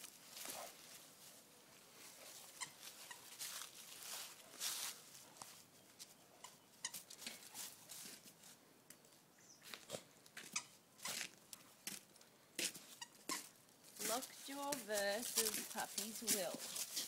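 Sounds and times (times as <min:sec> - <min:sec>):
dogs rustling and snuffling: 0:00.0 - 0:08.6, 0:12.9 - 0:17.0.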